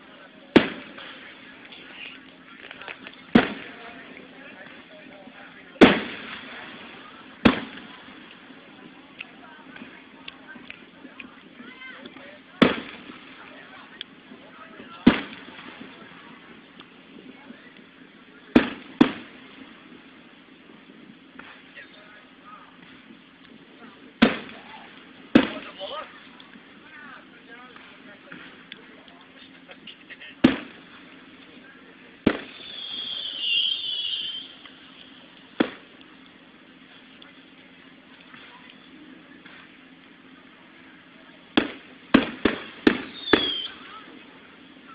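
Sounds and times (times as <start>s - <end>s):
firework shells bursting: 2.6s - 3.9s, 5.8s - 8.4s, 24.2s - 25.8s, 32.2s - 36.3s, 41.5s - 43.9s.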